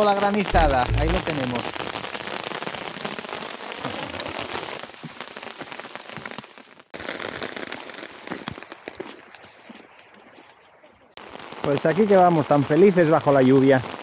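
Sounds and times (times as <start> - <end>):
hail clicking on wooden boardwalk: 0.0 - 9.8.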